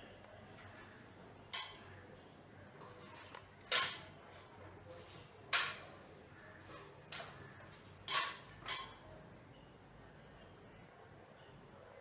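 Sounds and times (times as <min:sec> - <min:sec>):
faint steady background noise: 0:00.0 - 0:12.0.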